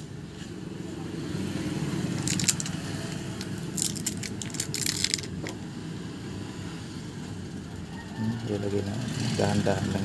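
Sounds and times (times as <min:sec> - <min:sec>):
low rumble of road traffic: 0:00.0 - 0:10.0
plastic film crinkling: 0:03.4 - 0:05.4.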